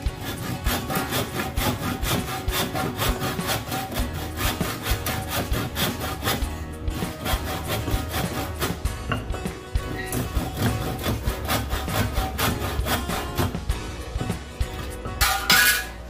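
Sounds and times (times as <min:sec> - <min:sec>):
handsaw cutting wood: 0:00.0 - 0:08.9, 0:09.8 - 0:13.8.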